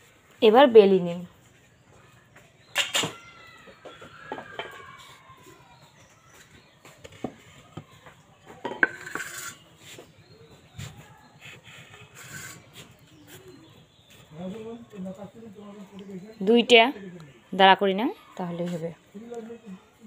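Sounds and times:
clinks and knocks on hard floor: 0:08.5 - 0:09.4
dough rubbing on wooden board: 0:09.0 - 0:14.7.

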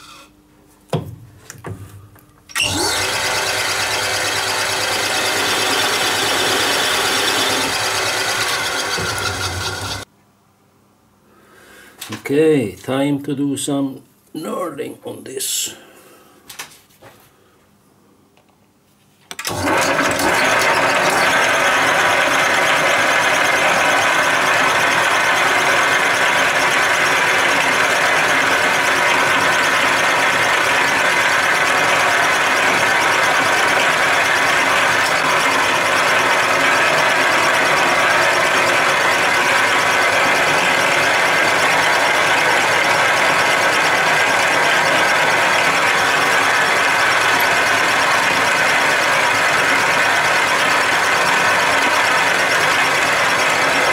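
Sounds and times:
metal lathe whirring: 0:02.5 - 0:10.1, 0:19.5 - 0:53.9.

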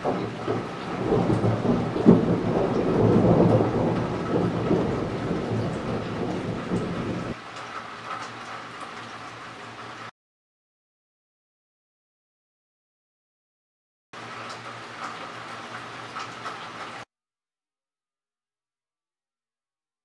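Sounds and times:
sharp thunder crack: 0:00.0 - 0:07.4
thunder rumbling: 0:00.0 - 0:07.4.

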